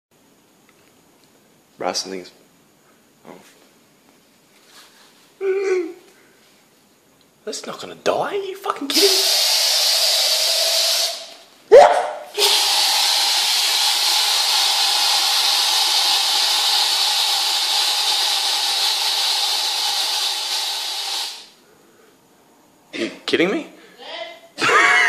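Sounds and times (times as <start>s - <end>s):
aerosol spray can hissing: 8.9s - 11.4s, 12.4s - 21.6s.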